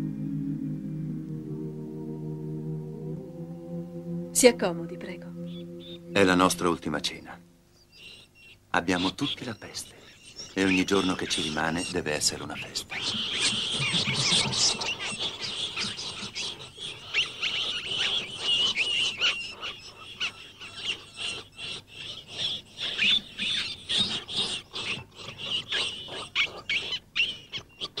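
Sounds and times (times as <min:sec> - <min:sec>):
rats squeaking: 0:07.8 - 0:28.0.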